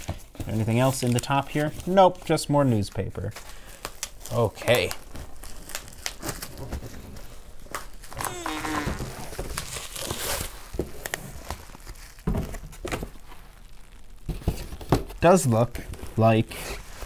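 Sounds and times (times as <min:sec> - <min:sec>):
bubble wrap crinkling: 0:00.0 - 0:17.0
brief pitched sound: 0:08.2 - 0:09.3.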